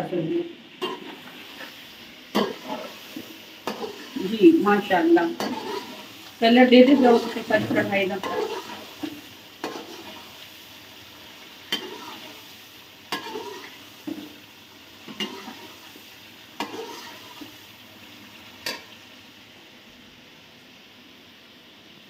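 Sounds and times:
food sizzling in a pan: 0.0 - 22.0
metal spoon scraping a pan: 0.8 - 1.7, 2.3 - 4.3, 5.3 - 10.3, 11.7 - 12.4, 13.1 - 14.3, 15.1 - 15.8, 16.6 - 17.5.

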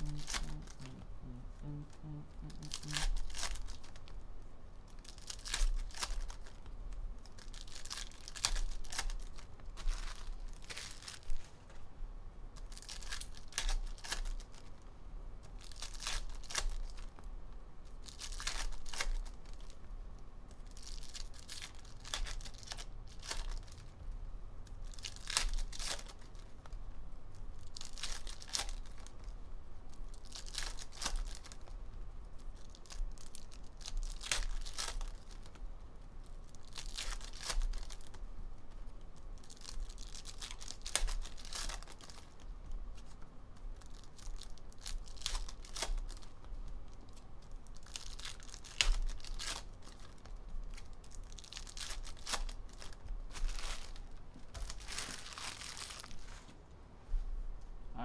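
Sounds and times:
wrappers crinkling: 0.0 - 4.2, 4.8 - 11.8, 12.6 - 14.8, 15.4 - 19.9, 20.5 - 24.0, 24.6 - 35.6, 36.2 - 56.6
foil packs tearing open: 7.2 - 11.3, 27.6 - 29.1, 30.2 - 31.7, 32.6 - 35.6, 36.6 - 38.2, 39.4 - 42.4, 43.8 - 46.3, 47.7 - 50.3, 51.0 - 56.2.

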